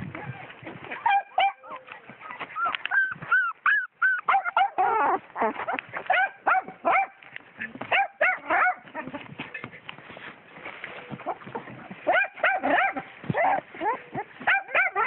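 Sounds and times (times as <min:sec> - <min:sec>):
puppies whimpering and yelping: 0:00.3 - 0:06.2, 0:10.7 - 0:15.0.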